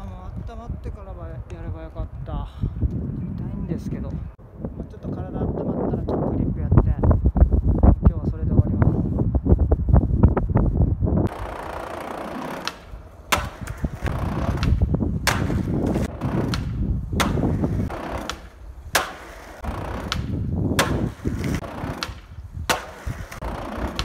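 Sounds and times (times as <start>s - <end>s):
skateboard rolling on concrete: 11.2s - 24.0s
skateboard clacks: 11.3s - 24.0s.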